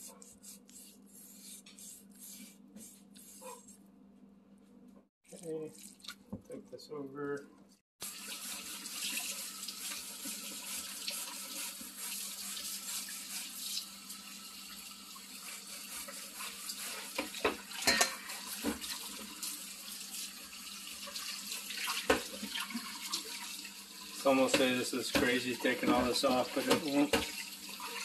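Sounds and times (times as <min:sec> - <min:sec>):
tap water running: 0:08.0 - 0:28.0.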